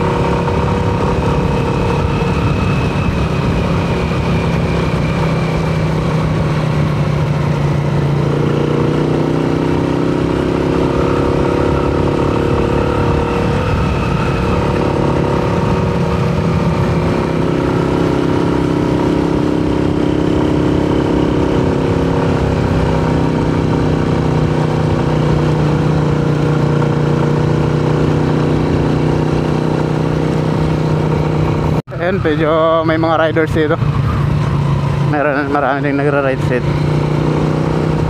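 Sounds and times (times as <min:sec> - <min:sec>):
motorcycle engine running: 0:00.0 - 0:38.0.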